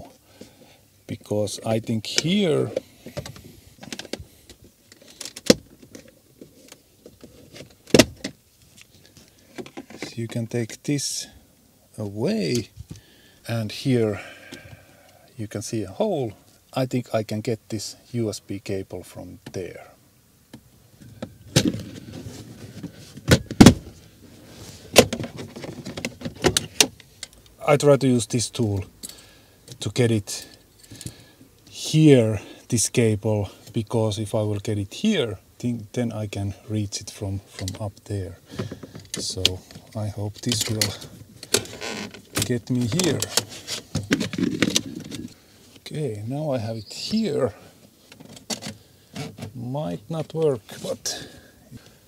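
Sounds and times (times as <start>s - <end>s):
rustling: 21.0s - 27.5s, 38.5s - 45.9s
plastic trim clicking and scraping: 40.4s - 45.4s.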